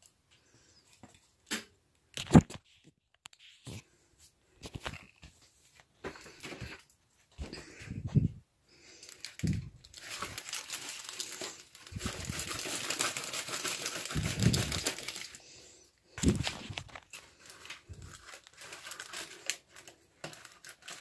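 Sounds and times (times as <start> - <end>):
paper and cardboard crinkling: 9.0 - 15.5, 16.2 - 21.0.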